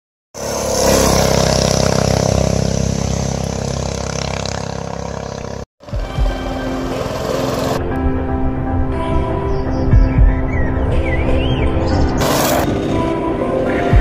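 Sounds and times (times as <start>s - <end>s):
small engine running: 0.4s - 7.9s.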